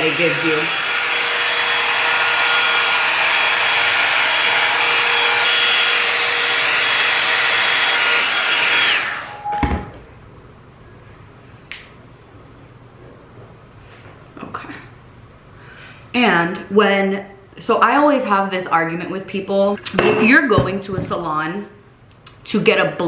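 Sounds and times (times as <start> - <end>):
hot-air brush blowing: 0.0 - 9.5.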